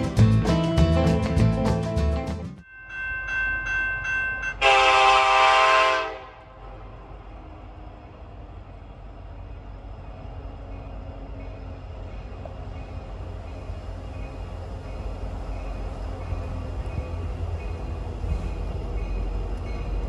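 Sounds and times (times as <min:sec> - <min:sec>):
short ringing tones: 0:02.6 - 0:05.1
distant train rumble: 0:02.8 - 0:20.0
train horn chord: 0:04.6 - 0:06.8.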